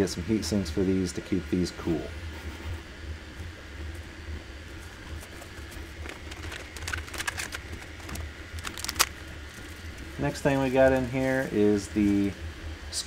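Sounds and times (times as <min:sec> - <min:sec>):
low steady hum: 0:00.0 - 0:13.0
plastic packaging rustling: 0:04.8 - 0:09.9.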